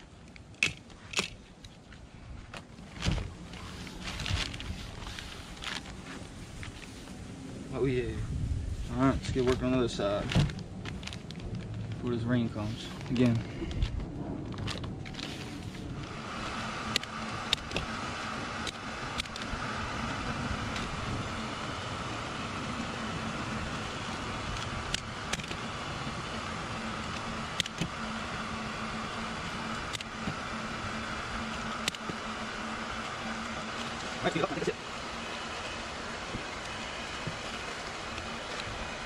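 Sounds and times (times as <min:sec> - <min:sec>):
motor and fan hum: 0:00.0 - 0:39.0
sharp clicks: 0:18.6 - 0:19.5.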